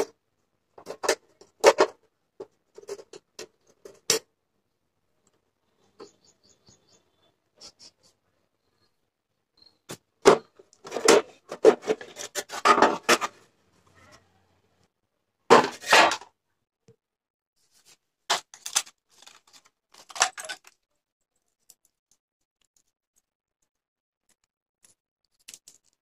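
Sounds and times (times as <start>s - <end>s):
sheet-metal cover clattering: 10.3s - 13.4s.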